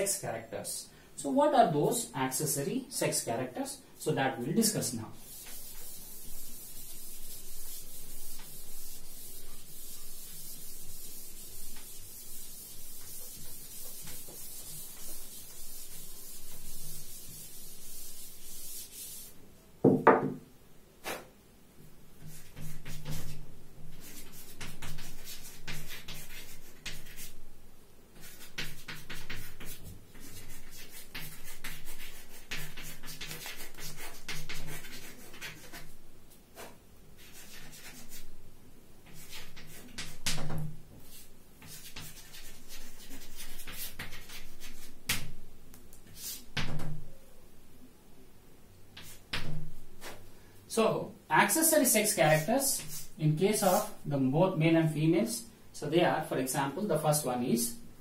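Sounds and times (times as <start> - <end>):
duster wiping chalkboard: 4.4 - 19.4, 22.2 - 27.4, 28.2 - 38.3, 39.0 - 45.4, 46.1 - 46.8, 49.0 - 50.3, 51.4 - 54.0
chalk scratching on blackboard: 4.6 - 19.4, 22.2 - 27.4, 28.2 - 38.3, 39.0 - 45.3, 46.0 - 46.8, 49.0 - 50.2, 51.4 - 54.0.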